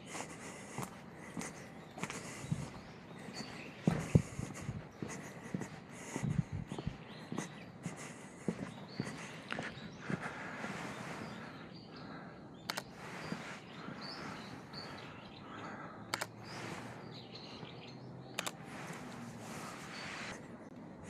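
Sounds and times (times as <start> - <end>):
background noise: 0.0 - 21.0
birds chirping: 0.0 - 21.0
sharp double clicks: 12.6 - 13.4, 16.1 - 16.6, 18.3 - 19.0.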